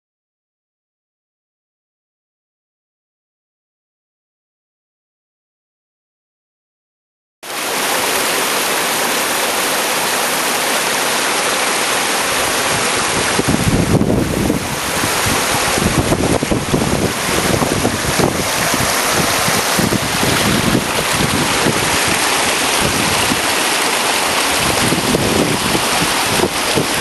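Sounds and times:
stream rushing over rocks: 0:07.4 - 0:27.0.

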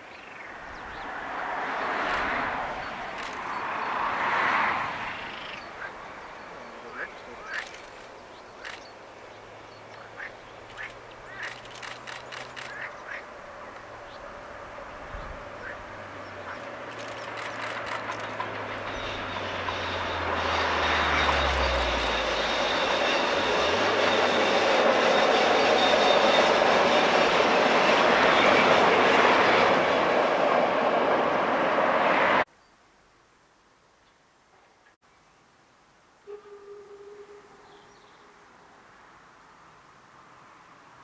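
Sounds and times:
vehicle passing by: 0:00.6 - 0:08.8, 0:09.5 - 0:32.4.

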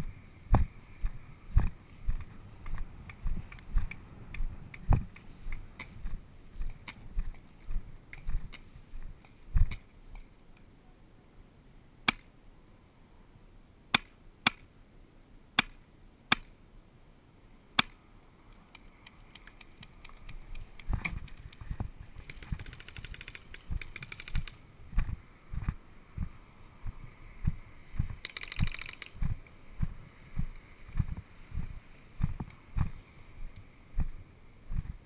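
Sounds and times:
paintball marker shots: 0:13.9 - 0:14.7, 0:15.6 - 0:16.6, 0:17.8 - 0:18.0
fast rattle: 0:22.2 - 0:24.6, 0:28.2 - 0:29.2.

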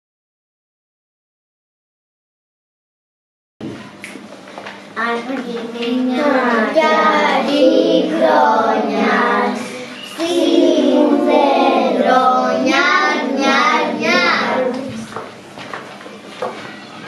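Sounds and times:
children singing a carol: 0:05.9 - 0:15.1.

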